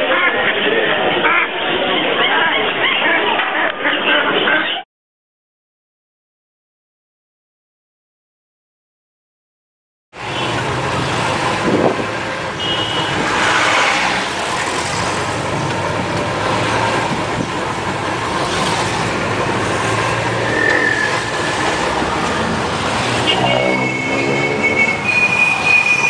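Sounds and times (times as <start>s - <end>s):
road traffic: 10.1s - 26.0s
high squeals: 19.9s - 26.0s.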